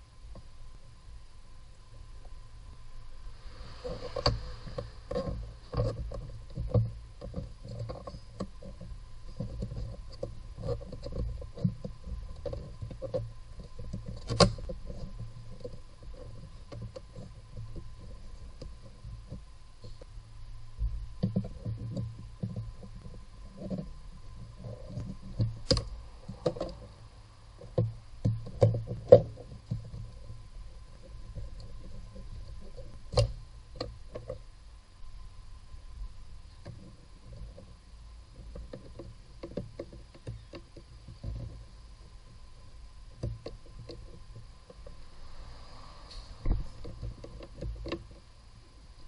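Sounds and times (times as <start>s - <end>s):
hands rubbing and scraping plastic: 3.2s - 20.2s, 43.1s - 49.0s.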